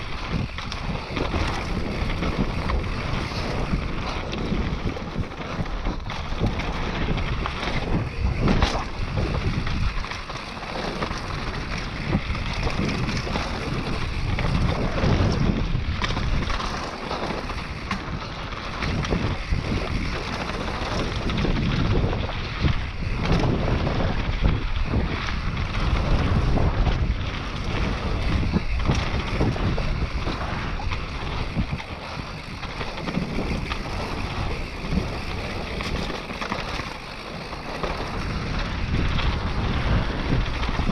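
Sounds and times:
tyre noise on dirt: 0.0s - 40.9s
wind buffeting microphone: 0.0s - 40.9s
bike knocking over rough ground: 0.1s - 40.9s.

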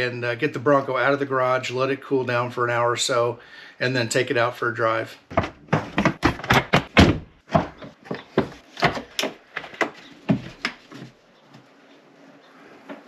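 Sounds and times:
handling noise: 5.3s - 11.8s.

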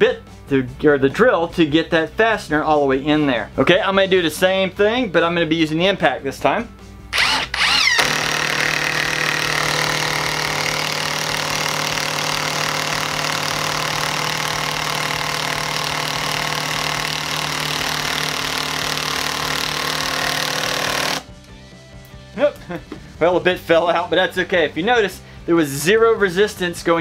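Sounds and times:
impact driver driving screw into wood: 7.2s - 21.3s.

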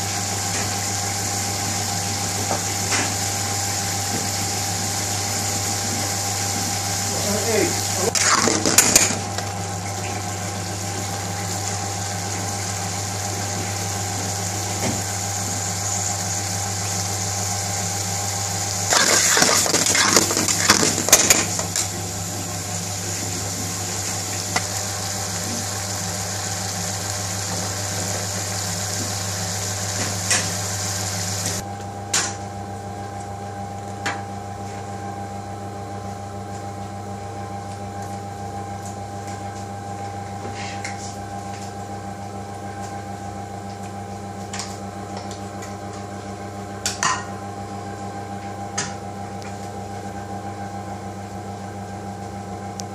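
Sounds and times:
steady hum and hiss: 0.0s - 32.8s.

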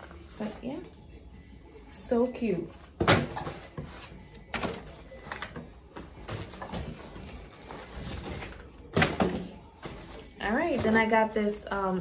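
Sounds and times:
packaging rustling: 3.2s - 11.5s.

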